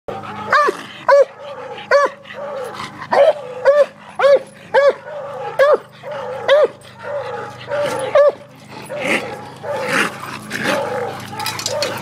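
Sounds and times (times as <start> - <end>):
dog barking: 0.5 - 9.9.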